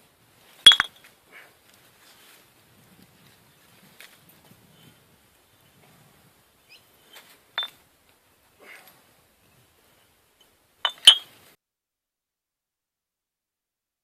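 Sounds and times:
glass bottles clinking: 0.7s - 1.0s, 10.9s - 11.2s.

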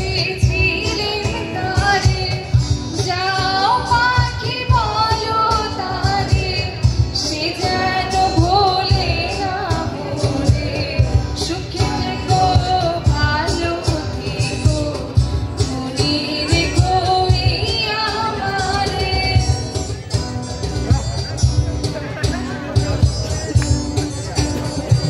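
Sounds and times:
woman singing: 0.0s - 19.7s
cajon beat: 0.0s - 25.0s
strummed acoustic guitars: 0.0s - 25.0s.

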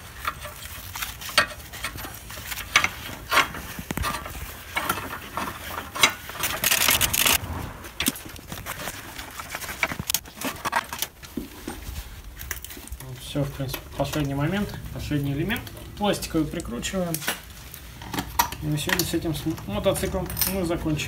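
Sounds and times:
metal tools clinking: 10.4s - 21.0s.

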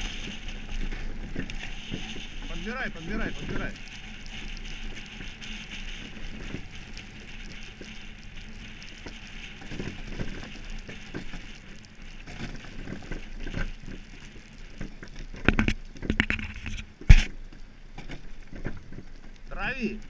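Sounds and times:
low rumble: 0.0s - 14.8s
small clicks and knocks: 3.1s - 19.5s.

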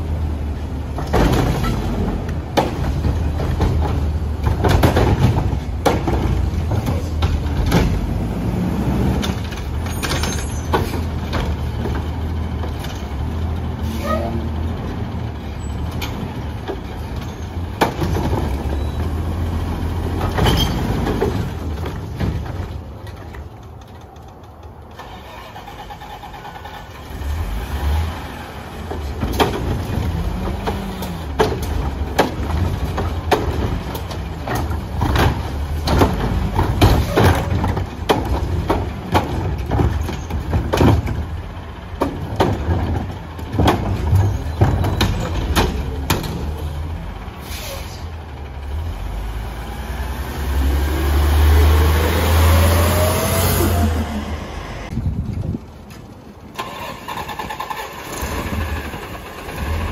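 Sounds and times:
garbage truck engine rumbling: 0.0s - 59.9s
metal clanks and bangs: 0.9s - 8.3s, 9.1s - 26.9s, 28.8s - 47.0s.

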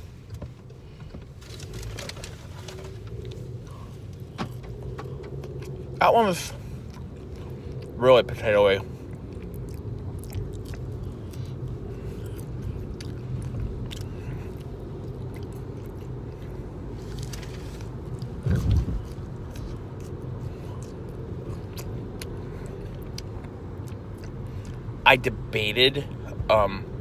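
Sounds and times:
car cabin road rumble: 0.0s - 27.0s
person chewing crispy fries: 6.6s - 24.9s.

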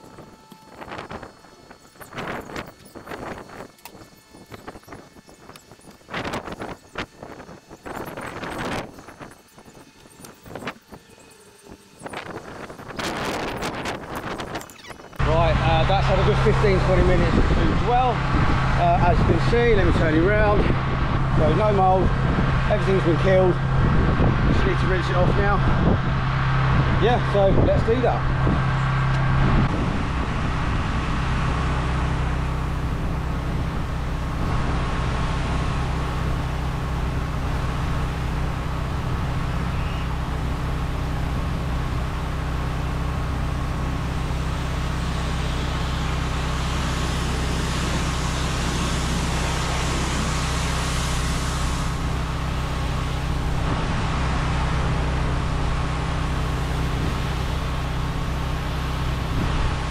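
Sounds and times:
pressure washer engine running: 15.2s - 59.9s
water spray hissing on wall: 45.1s - 53.4s.

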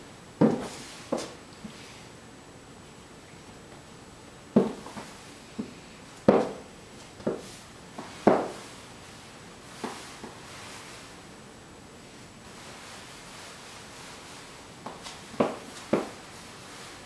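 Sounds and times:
high heels on hardwood floor: 0.4s - 1.4s, 4.6s - 8.6s, 14.8s - 16.2s.

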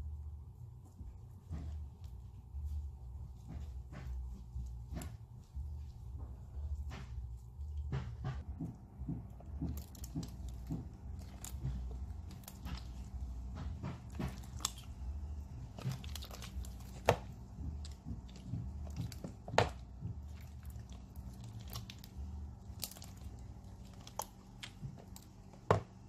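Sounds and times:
slime squishing and crackling: 8.4s - 26.0s.

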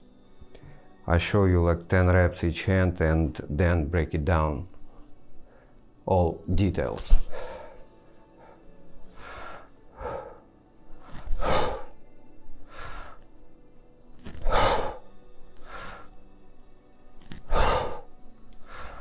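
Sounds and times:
faint background music: 0.0s - 19.0s
man breathing hard: 7.2s - 13.4s, 14.2s - 16.3s, 17.2s - 19.0s.

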